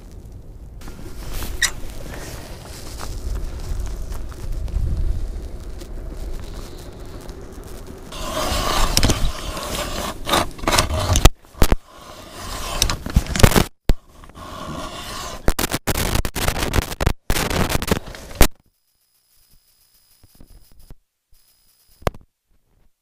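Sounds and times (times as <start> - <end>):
ice auger grinding through ice: 8.1 - 13.4, 14.2 - 15.5.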